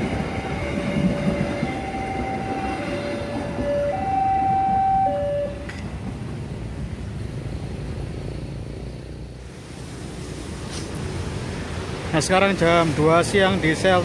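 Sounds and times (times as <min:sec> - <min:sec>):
two-tone crossing alarm: 0:00.0 - 0:05.7
train rumble: 0:00.0 - 0:14.0.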